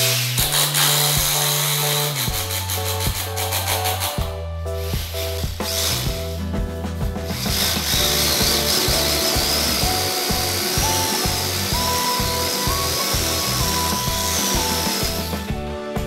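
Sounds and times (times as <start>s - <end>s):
hammer drill boring into wall: 0.0s - 4.2s, 7.4s - 15.5s
background music: 0.0s - 16.0s.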